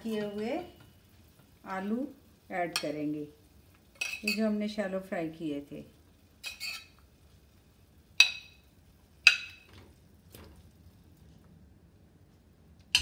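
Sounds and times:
metal spoon clinking on frying pan: 4.0s - 4.4s, 6.4s - 7.0s, 8.2s - 8.6s.

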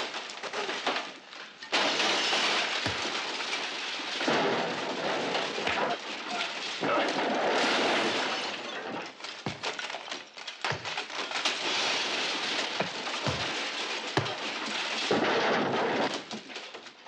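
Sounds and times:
wood splintering: 0.0s - 16.9s
crashing clatter: 0.0s - 17.0s
punch thuds and cracks: 9.4s - 11.4s, 12.8s - 14.6s.

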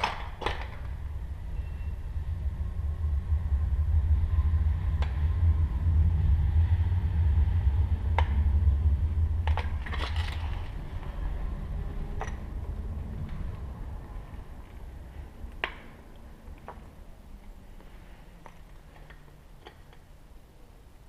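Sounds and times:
camera handling rumble: 9.4s - 11.1s
sharp clicks and scrapes: 9.4s - 11.1s.

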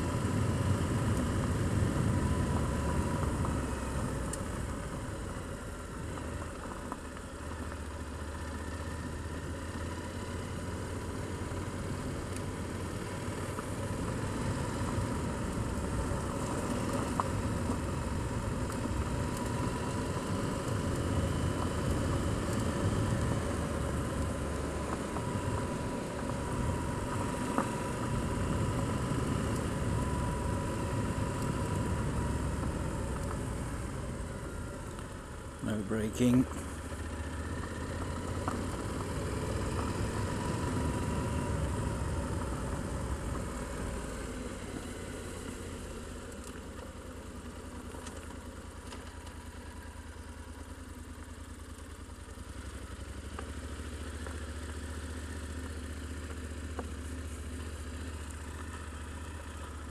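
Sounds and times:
motorcycle engine running: 0.0s - 59.9s
road noise: 0.0s - 59.9s
wind: 0.0s - 59.9s.

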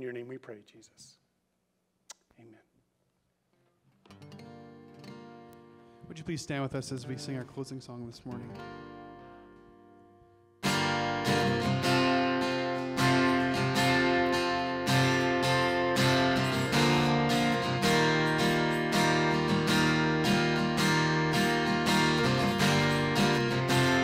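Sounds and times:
acoustic guitar strumming: 4.0s - 24.0s.

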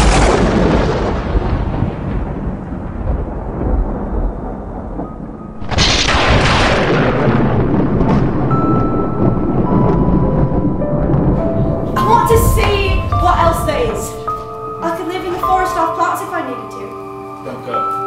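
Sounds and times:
loud boom with deep rumble: 0.0s - 14.8s
held music notes: 8.6s - 18.0s.

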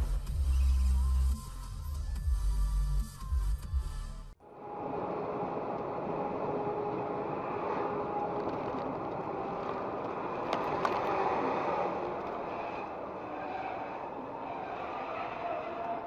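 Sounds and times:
truck driving road noise: 4.4s - 16.0s.

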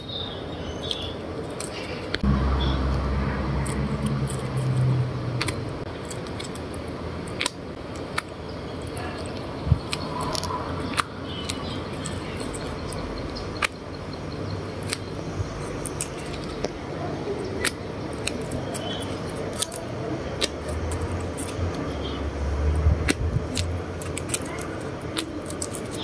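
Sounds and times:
low hum: 2.1s - 6.1s.

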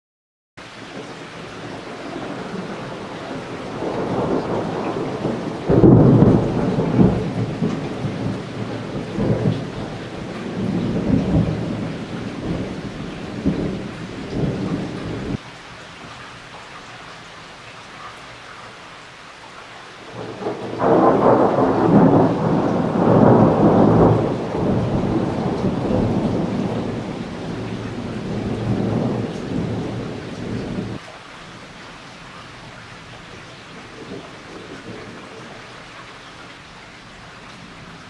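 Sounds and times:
rain hissing: 0.6s - 38.0s
thunder rolling: 1.6s - 15.4s, 20.1s - 31.0s.

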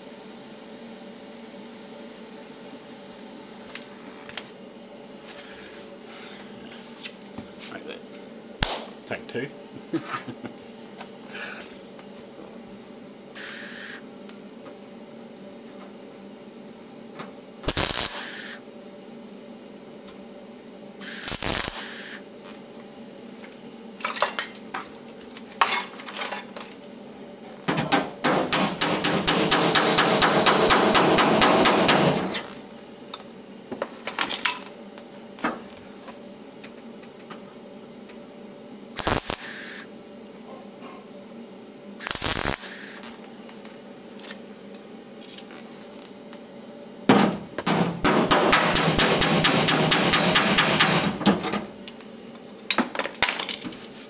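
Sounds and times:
welding tack: 17.6s - 18.6s, 21.0s - 22.2s, 39.0s - 39.8s, 42.0s - 43.2s.

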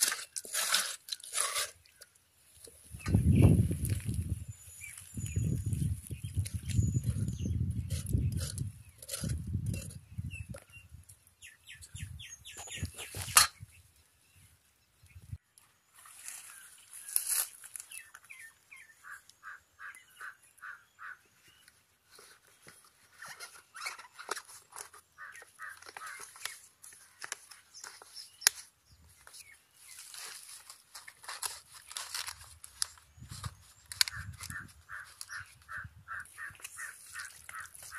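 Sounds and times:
leaf crinkling and rustling: 3.5s - 6.9s, 15.7s - 18.5s, 25.7s - 35.6s, 36.4s - 37.9s.

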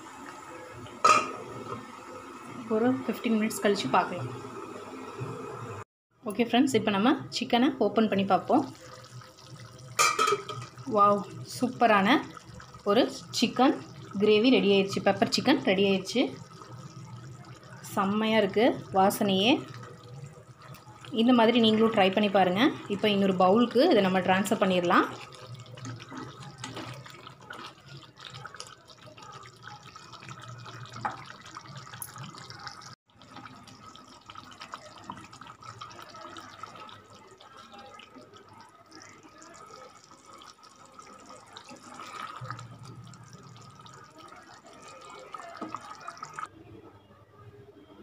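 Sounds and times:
gravy slopping and pouring: 8.1s - 46.5s
ladle clinking against pans: 10.0s - 10.7s.

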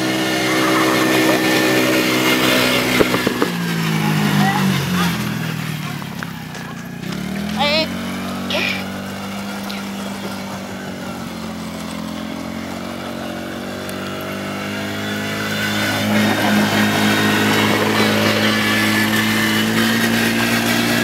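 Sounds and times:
quad engine running: 0.0s - 21.0s.

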